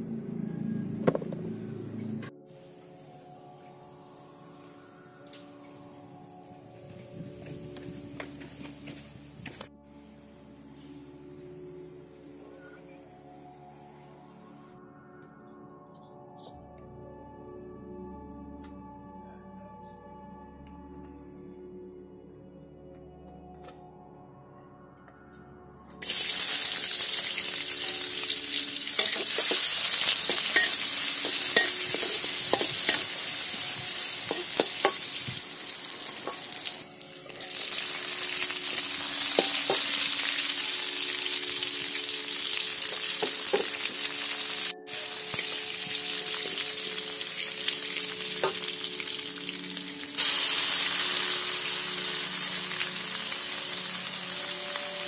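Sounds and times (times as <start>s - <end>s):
food sizzling in a wok: 26.0s - 55.0s.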